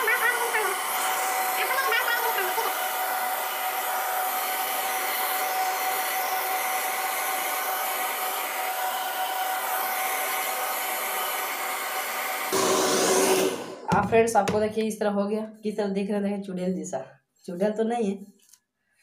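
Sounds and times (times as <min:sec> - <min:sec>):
hair dryer running: 0:00.0 - 0:14.7.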